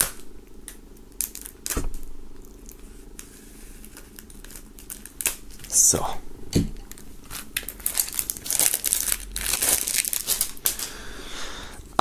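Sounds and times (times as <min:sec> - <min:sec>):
plastic wrap crinkling and tearing: 0:00.0 - 0:06.0, 0:06.8 - 0:10.9.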